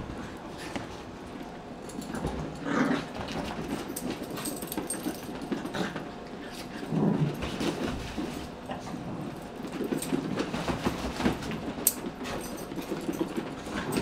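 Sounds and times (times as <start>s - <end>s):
dogs scuffling: 0.0s - 14.0s.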